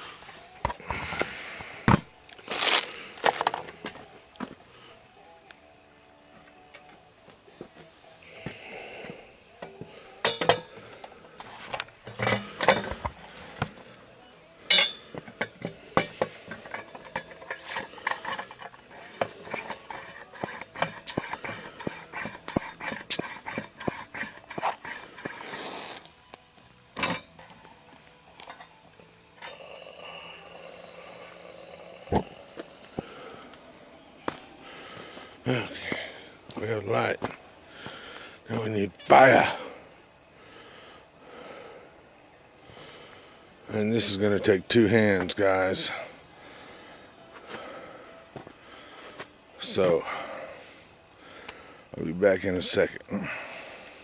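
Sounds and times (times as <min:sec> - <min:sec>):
metal parts clinking and rattling: 0:12.0 - 0:13.0, 0:14.7 - 0:23.9, 0:27.0 - 0:27.7
soft steady hiss: 0:24.7 - 0:54.0.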